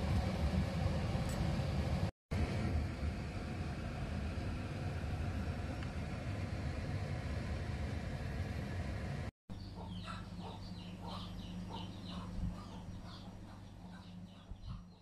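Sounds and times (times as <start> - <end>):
low rumbling noise: 0.0 - 14.8
steady low hum: 0.0 - 15.0
birds chirping: 9.5 - 15.0.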